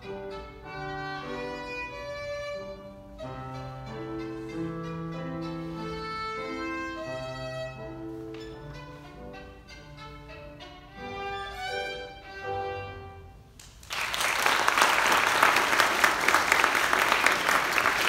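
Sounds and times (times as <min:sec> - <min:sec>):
solo violin playing: 0:00.0 - 0:13.5
audience applause: 0:13.6 - 0:18.0.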